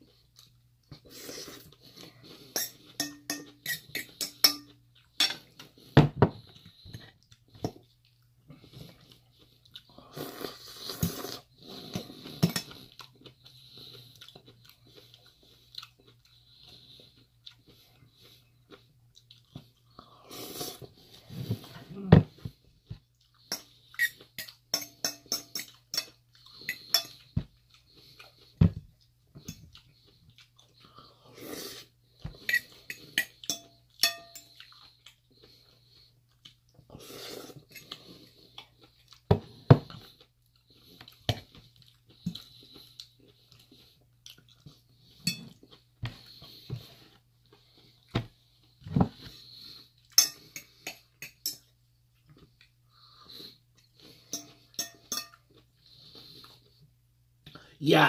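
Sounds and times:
fork scraping against bowl: 2.4s - 5.4s, 32.4s - 34.5s
chewing and crunching lettuce: 6.6s - 20.2s, 40.0s - 48.7s.

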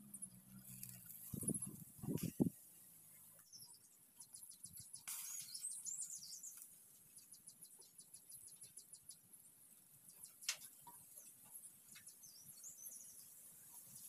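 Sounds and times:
low bumps: 0.0s - 2.6s
birds chirping: 0.0s - 14.0s
chicken wings grilling: 0.1s - 3.4s, 4.9s - 7.3s, 9.8s - 14.0s.

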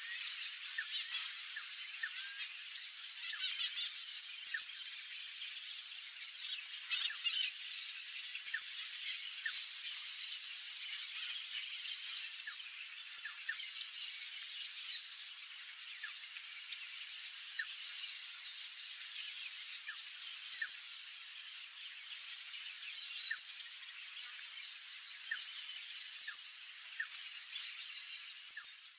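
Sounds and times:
insect chirps: 0.0s - 28.9s
insect high-pitched trill: 0.0s - 28.9s.

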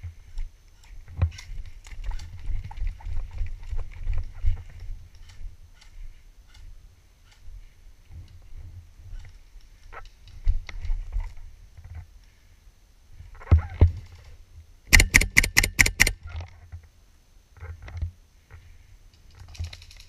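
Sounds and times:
muffled airsoft shots: 14.9s - 16.2s.

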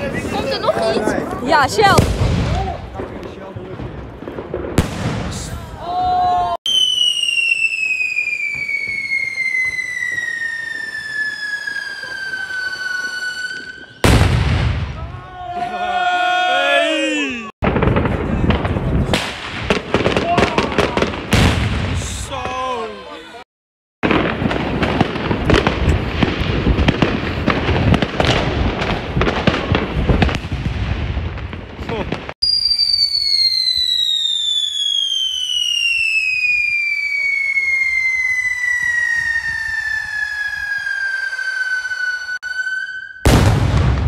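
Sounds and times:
firework bang: 0.0s - 5.9s, 12.3s - 15.2s, 17.6s - 22.3s, 24.0s - 36.0s, 42.1s - 44.0s
firework whistle falling in pitch: 6.7s - 14.4s, 32.4s - 44.0s.

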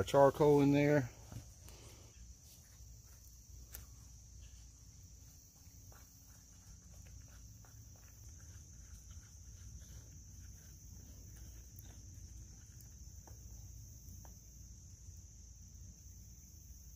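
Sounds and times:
insects buzzing: 0.0s - 16.9s.

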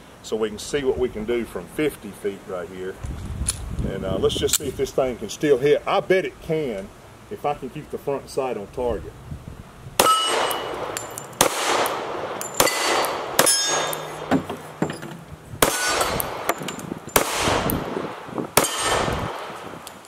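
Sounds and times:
steel plates clanging: 10.0s - 11.4s, 12.4s - 17.2s
pistol shots: 10.0s - 14.8s, 15.6s - 19.6s.

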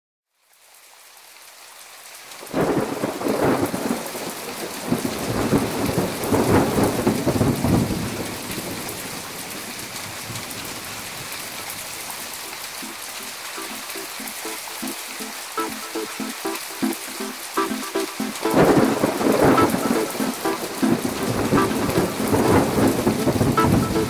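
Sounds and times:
rain hiss: 0.4s - 24.0s
thunder crack and rumble: 2.6s - 8.6s, 18.4s - 24.0s.

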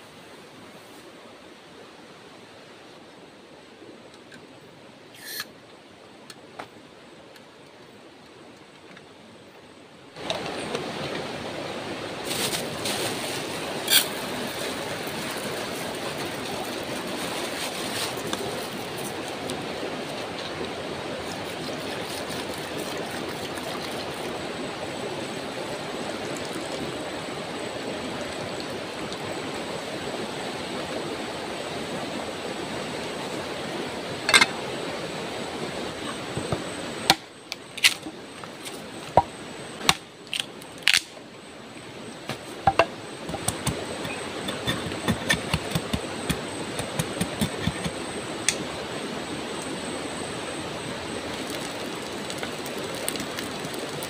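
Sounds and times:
river flowing: 0.0s - 54.0s
bush knife splitting wood: 42.7s - 48.0s.

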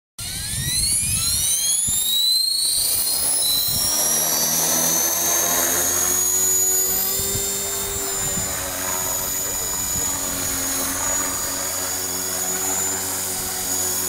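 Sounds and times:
rc helicopter motor whine: 0.2s - 14.0s.

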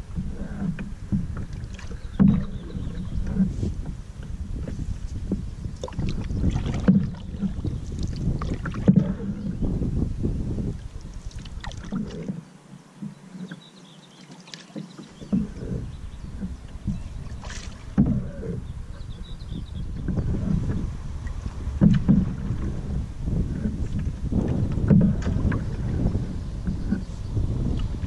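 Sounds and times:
water splashing: 0.0s - 9.8s, 10.6s - 12.4s, 13.0s - 28.0s
wind rumbling on microphone: 0.0s - 13.9s, 14.8s - 28.0s
knocks against canoe hull: 0.1s - 2.6s, 3.2s - 7.7s, 16.4s - 18.4s, 21.6s - 22.8s, 23.6s - 25.6s.

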